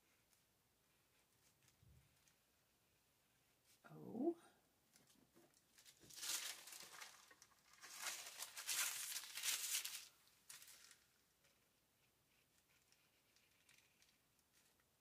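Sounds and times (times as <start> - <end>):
paper sheets rustling: 5.0 - 11.6.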